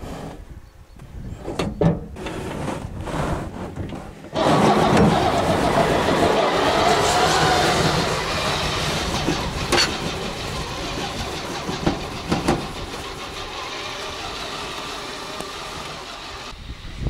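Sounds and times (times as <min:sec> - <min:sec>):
snow blade pushing through snow: 0:04.4 - 0:16.6.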